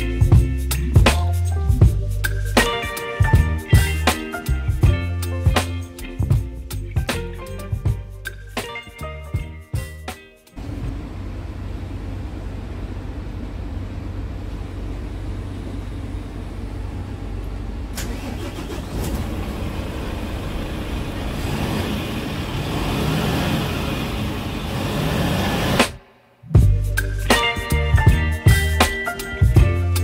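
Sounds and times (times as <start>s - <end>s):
diesel engine idling: 10.6s - 25.8s.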